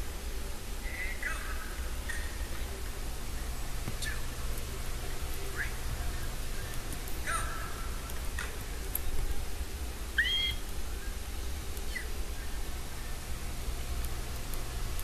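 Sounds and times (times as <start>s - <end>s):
steady low hum: 0.0s - 15.0s
high-pitched squeaky vocal noises: 10.2s - 10.7s.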